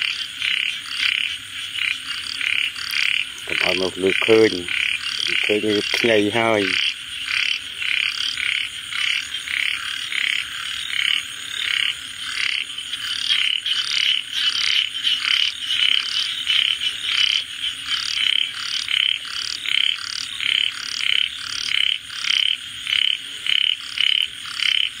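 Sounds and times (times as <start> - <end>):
frogs croaking: 0.0 - 25.0.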